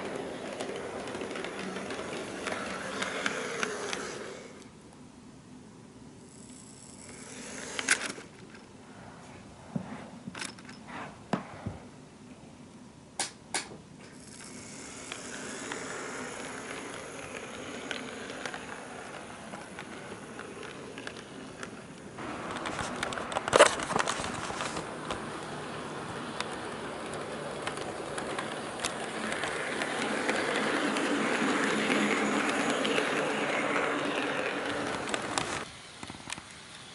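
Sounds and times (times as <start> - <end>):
wheels clicking over rail joint: 0.0 - 4.6, 14.0 - 36.6
model train wheels rolling on rails: 0.0 - 4.8, 6.2 - 8.7, 14.0 - 36.9.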